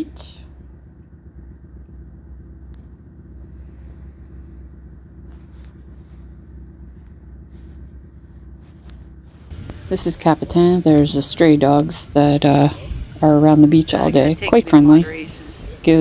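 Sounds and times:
wind rumbling on microphone: 0:12.0 - 0:16.0.

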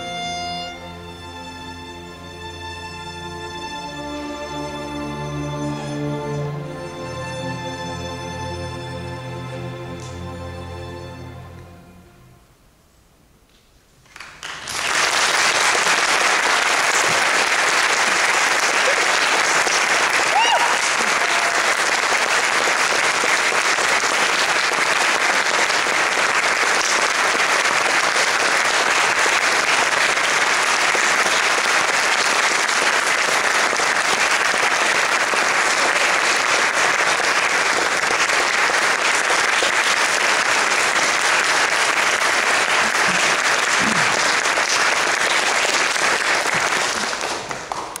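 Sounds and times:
audience applauding: 0:14.0 - 0:48.0.

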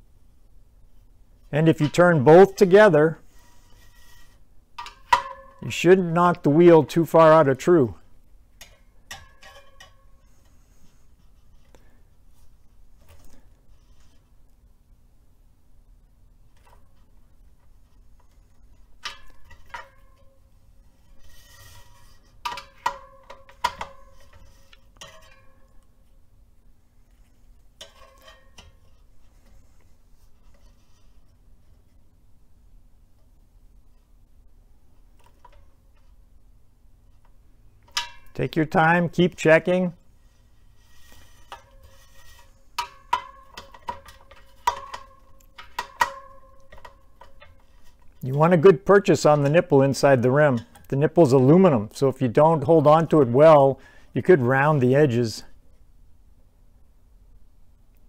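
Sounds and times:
tool tapping bicycle spokes: 0:03.4 - 0:05.6, 0:08.6 - 0:10.6, 0:17.6 - 0:20.4, 0:21.0 - 0:25.9, 0:37.2 - 0:38.4, 0:40.2 - 0:49.7.

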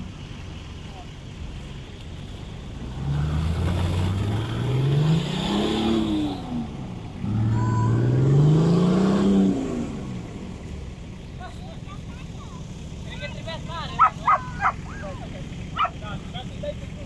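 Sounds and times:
wheels churning mud and water: 0:00.0 - 0:17.0
diesel engine revving hard: 0:02.5 - 0:17.0.

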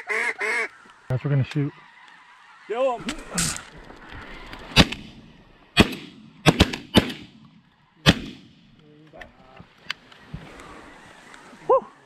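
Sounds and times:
shotgun blasts: 0:04.7 - 0:05.2, 0:05.8 - 0:07.4, 0:08.0 - 0:08.7.

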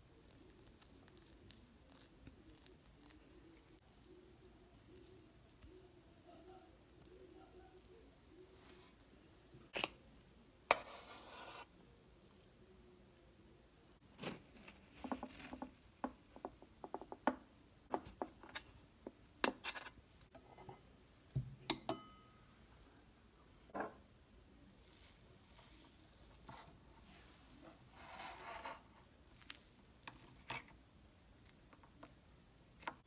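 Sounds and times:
knife scraping cake: 0:10.7 - 0:11.7, 0:27.9 - 0:30.6.

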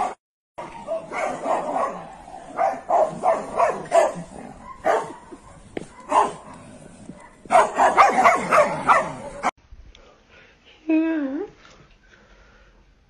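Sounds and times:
dog barking: 0:00.0 - 0:09.5.

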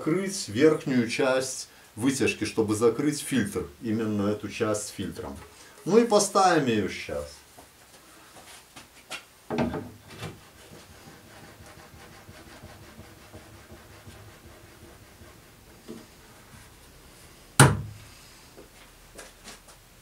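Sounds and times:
wood rubbing: 0:09.1 - 0:17.0
cabinet door clacking shut: 0:17.6 - 0:18.0.

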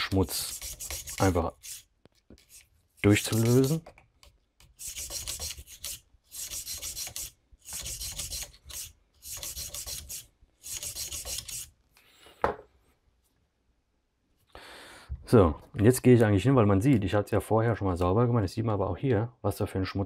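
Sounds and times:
bore brush scrubbing metal cylinder: 0:00.2 - 0:03.8.

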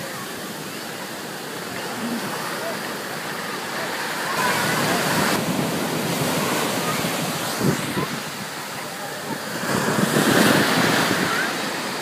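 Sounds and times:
ocean surf breaking: 0:00.0 - 0:12.0
wind buffeting microphone: 0:04.6 - 0:12.0.

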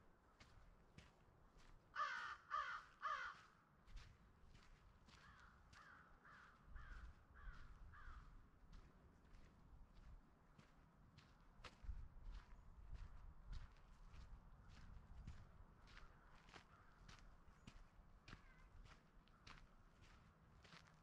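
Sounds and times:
crow cawing: 0:02.0 - 0:03.6, 0:05.2 - 0:08.3, 0:16.0 - 0:17.1.

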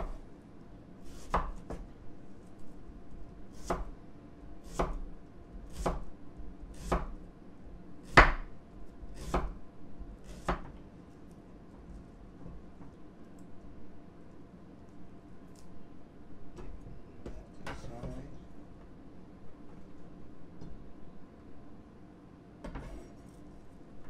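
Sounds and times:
knife chopping onion on board: 0:01.0 - 0:01.9, 0:03.5 - 0:04.0, 0:04.6 - 0:07.2, 0:08.0 - 0:08.5, 0:09.1 - 0:09.6, 0:10.2 - 0:10.8.

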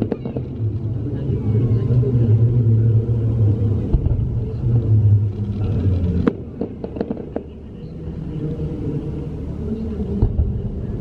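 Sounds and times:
fireworks cracking pops: 0:00.0 - 0:00.8, 0:05.6 - 0:07.6
low rumble: 0:00.0 - 0:11.0
firework bang: 0:03.9 - 0:04.4.

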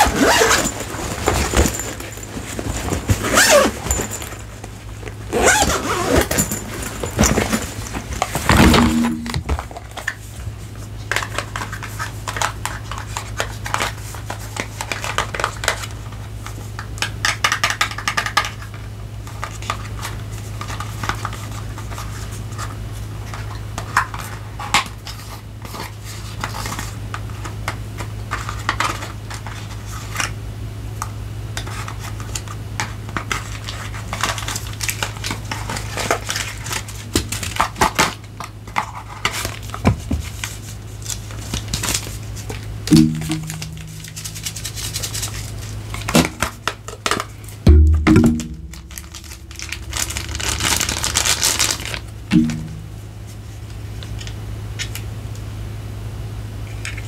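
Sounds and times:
low hum: 0:08.5 - 0:09.7, 0:42.9 - 0:45.3, 0:47.6 - 0:53.4.

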